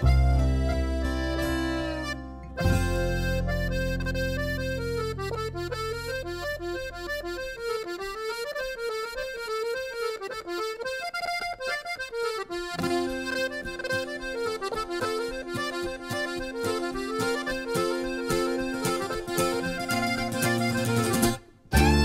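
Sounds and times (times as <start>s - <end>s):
steady bass beat: 0.0s - 7.7s, 21.8s - 22.0s
accordion folk tune: 0.0s - 22.0s.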